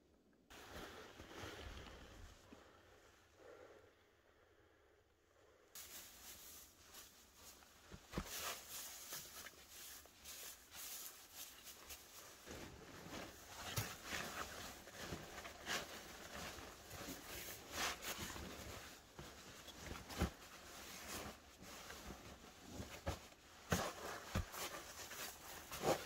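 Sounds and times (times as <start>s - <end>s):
dry pine needles rustling: 5.8s - 12.5s.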